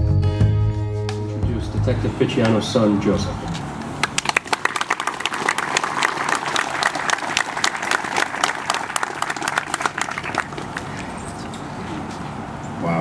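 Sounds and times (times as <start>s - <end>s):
crowd applauding: 4.0s - 11.3s.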